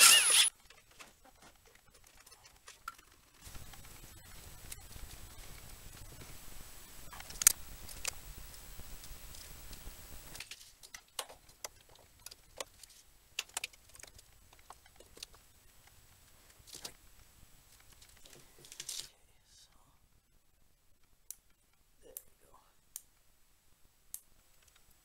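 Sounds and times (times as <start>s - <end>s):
clicks and taps of handled wires: 9.3s - 16.0s.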